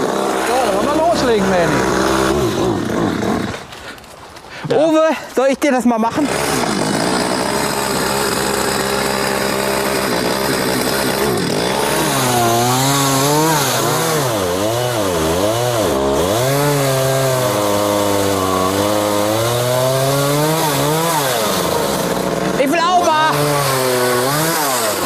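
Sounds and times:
chainsaw engine revving: 0:00.0 - 0:04.0, 0:06.0 - 0:25.0.

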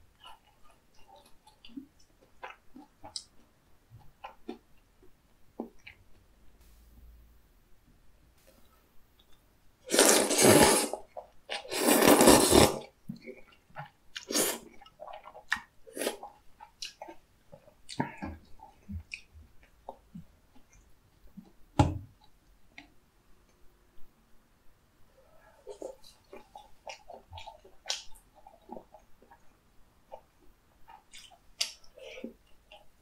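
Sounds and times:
loud noodle slurps: 0:09.9 - 0:11.0, 0:11.6 - 0:12.9, 0:14.2 - 0:14.6
wet chewing: 0:25.7 - 0:32.9.

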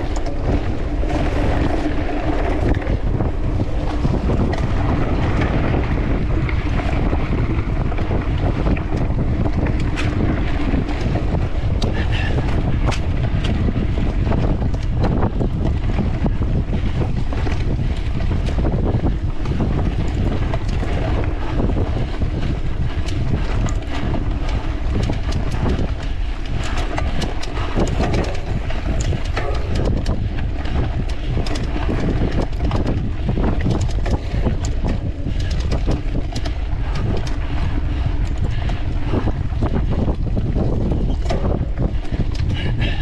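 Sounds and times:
bike rattling over rough ground: 0:00.0 - 0:43.0
wind buffeting microphone: 0:00.0 - 0:43.0.

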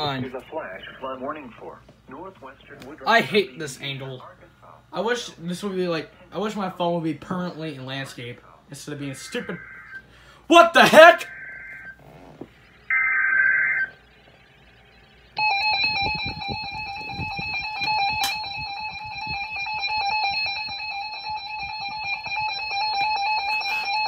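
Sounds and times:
harsh steady attention tone: 0:00.0 - 0:24.0
digital header burst: 0:08.7 - 0:22.3.

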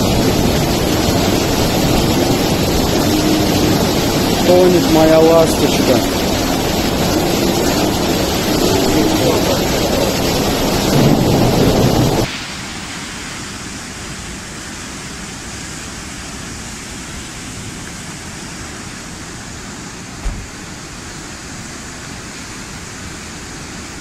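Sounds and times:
floodwater rushing: 0:00.0 - 0:24.0.

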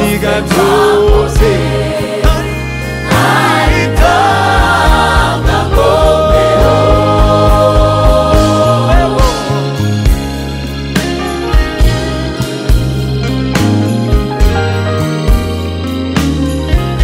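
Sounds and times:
gospel choir singing: 0:00.0 - 0:10.6
live band playing: 0:00.0 - 0:17.0.

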